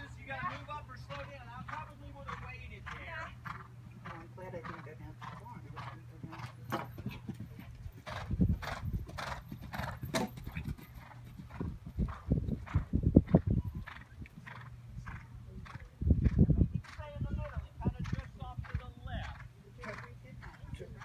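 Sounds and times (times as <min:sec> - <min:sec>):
horse hoofbeats on sand: 0:00.0 - 0:21.0
low rumbling: 0:07.1 - 0:19.4.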